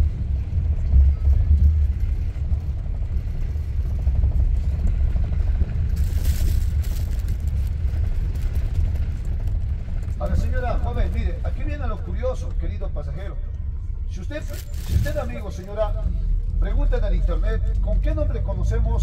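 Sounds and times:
bus engine and road rumble: 0.0 - 19.0.

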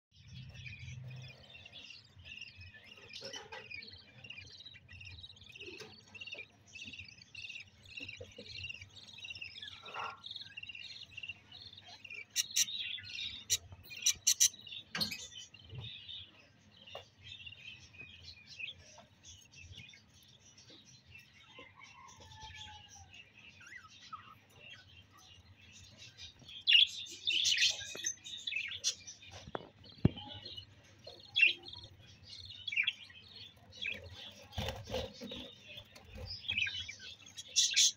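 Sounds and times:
budgerigars chattering: 9.6 - 15.2.

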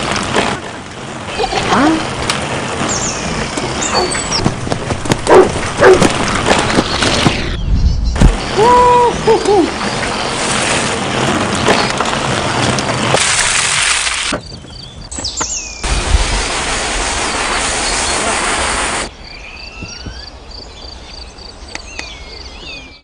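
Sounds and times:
bike tyres on dirt trail: 0.0 - 19.1
rushing wind: 0.0 - 22.6
birds chirping: 1.2 - 13.0, 14.3 - 15.9
washer spraying water: 13.0 - 14.3, 15.8 - 19.1.

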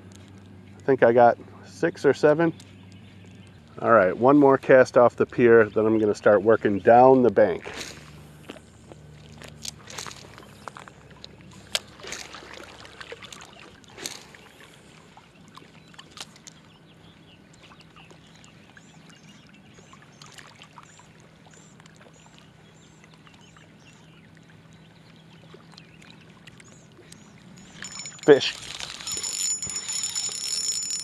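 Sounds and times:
water lapping at shore: 0.0 - 31.0
bird chirping: 2.0 - 3.8
fishing reel casting and reeling: 7.6 - 15.0, 27.0 - 31.0.

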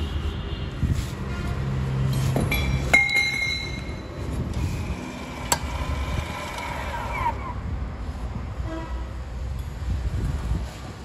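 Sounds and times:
metal clinking with ringing tone: 2.5 - 4.1.

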